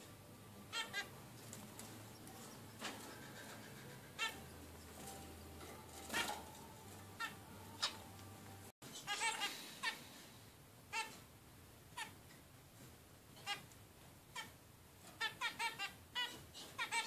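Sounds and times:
finches calling: 0.5 - 10.0, 15.2 - 17.0.

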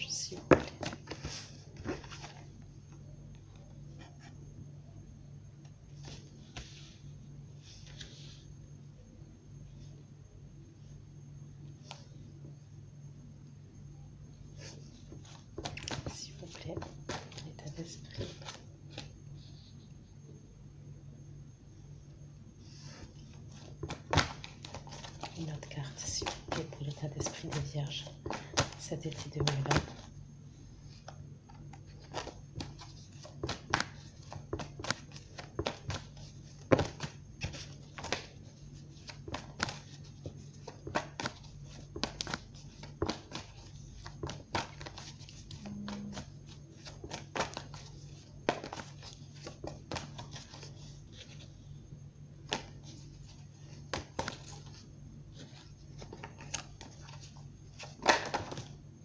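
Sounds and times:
low steady hum: 0.0 - 59.0
cards being shuffled: 0.3 - 2.6, 14.6 - 19.7, 22.7 - 30.1, 30.9 - 51.6, 52.4 - 58.8.

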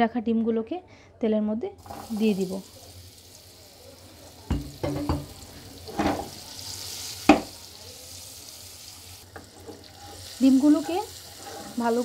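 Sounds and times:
eggs sizzling in oil: 1.8 - 12.0
spatula knocking against pan: 4.5 - 5.3.

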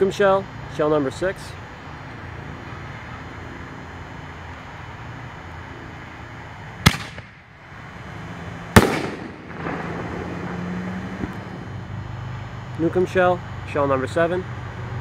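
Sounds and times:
firework launch boom: 6.8 - 7.4, 8.8 - 11.7
firework shell bursting bang: 6.8 - 7.4, 8.8 - 10.6.

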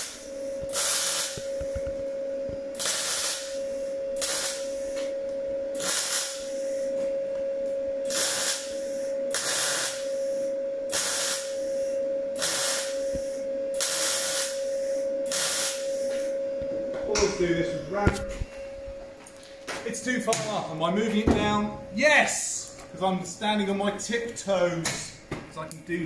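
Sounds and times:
welding arc crackle: 0.0 - 7.1, 8.0 - 16.3
welder cooling fan whine: 0.0 - 26.0.

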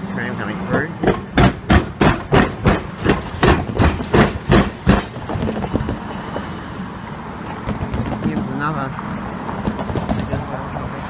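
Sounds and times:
tram wheels clattering over crossing: 1.0 - 6.5.

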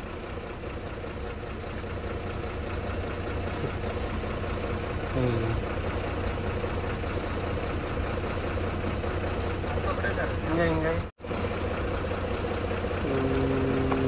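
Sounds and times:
diesel lorry engine idling: 0.0 - 14.0.

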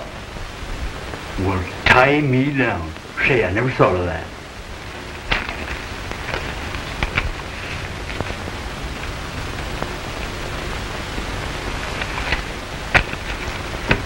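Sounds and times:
film soundtrack hiss: 0.0 - 14.0.

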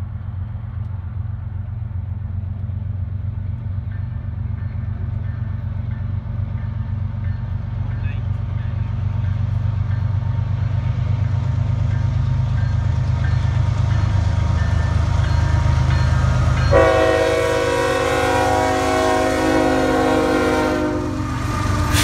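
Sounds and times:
diesel locomotive engine rumble: 0.0 - 22.0
locomotive air horn chord: 16.7 - 22.0.

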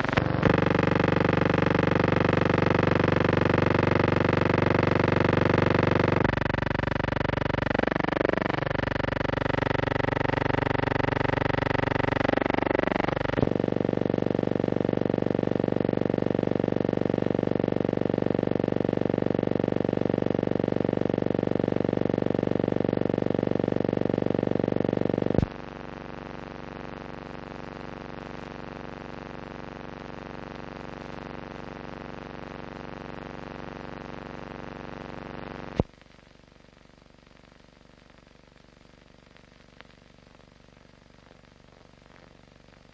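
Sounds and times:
film soundtrack hum with flutter: 0.0 - 26.6.

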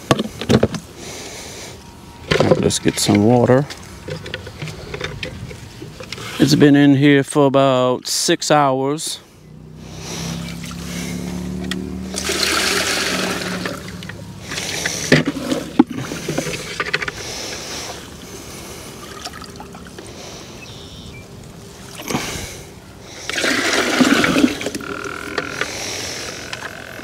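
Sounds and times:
low hum: 9.2 - 27.0
water pouring and splashing: 12.1 - 16.9, 23.2 - 24.9.

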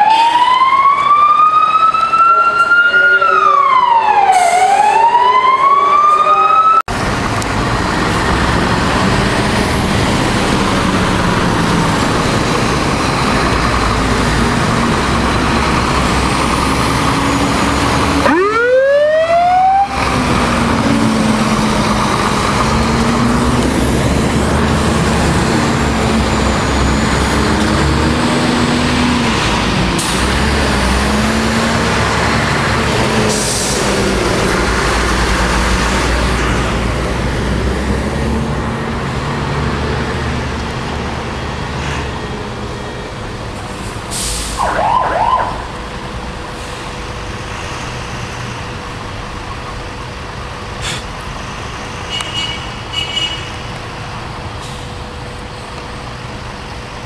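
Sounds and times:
fire truck siren wailing: 0.0 - 41.4, 44.1 - 46.5
heavy truck engine rumble: 6.8 - 57.0.

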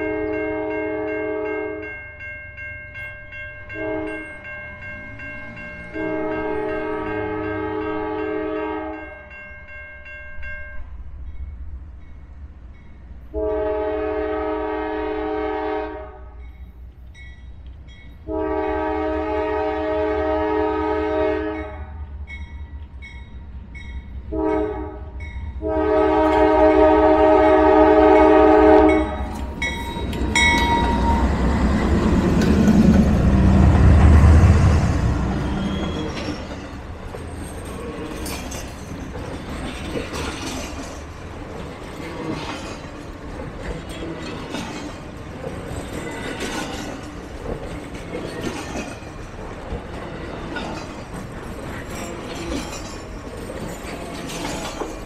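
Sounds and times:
locomotive air horn: 0.0 - 1.8, 3.8 - 4.3, 5.9 - 9.1, 13.3 - 16.4, 18.3 - 22.0, 24.3 - 29.4, 34.3 - 36.2
train wheel noise: 11.1 - 55.0.

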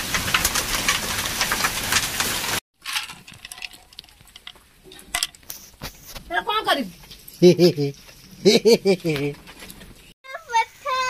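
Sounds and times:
rain hissing: 0.0 - 2.6, 3.5 - 9.4
hailstones clinking in metal basin: 0.0 - 8.4
hailstones striking ground: 0.0 - 8.4.

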